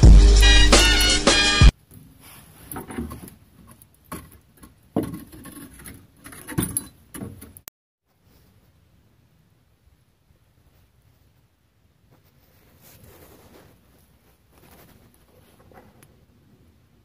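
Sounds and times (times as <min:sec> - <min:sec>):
metallic clinks and knocks: 0:05.1 - 0:07.6.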